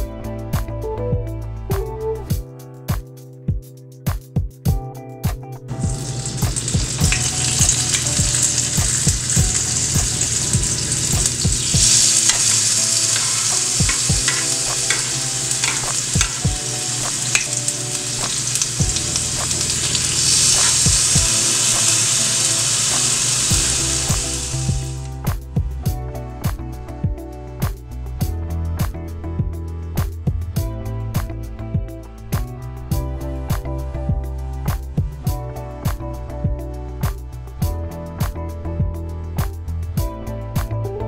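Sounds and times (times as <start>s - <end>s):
chicken sizzling on a grill pan: 5.7s - 25.1s.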